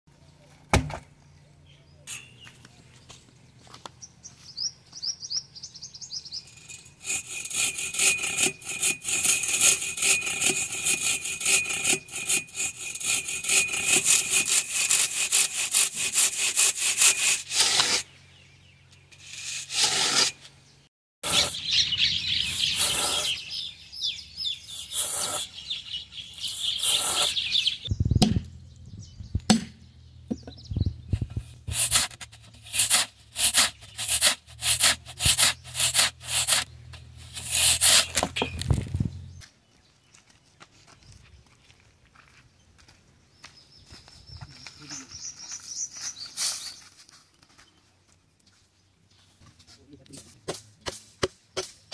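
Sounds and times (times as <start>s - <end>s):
birds chirping: 0.1s - 9.0s, 17.6s - 19.6s, 20.2s - 32.0s, 32.7s - 49.6s
sledgehammer knocking wooden wedge: 0.7s - 1.1s, 28.2s - 28.5s, 29.5s - 30.6s
thump: 0.7s - 1.1s
hand saw cutting palm trunk: 6.5s - 18.1s, 19.2s - 20.4s, 21.2s - 21.6s, 22.5s - 23.4s, 24.8s - 25.6s, 26.4s - 27.4s, 29.5s - 29.8s, 31.2s - 39.0s, 50.5s - 51.9s.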